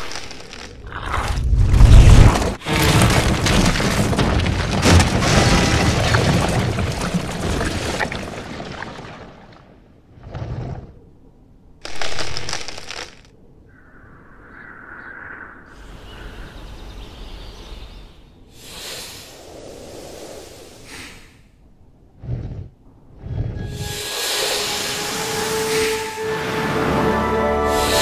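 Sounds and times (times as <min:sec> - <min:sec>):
brief hissing tone: 0:23.7 - 0:26.2.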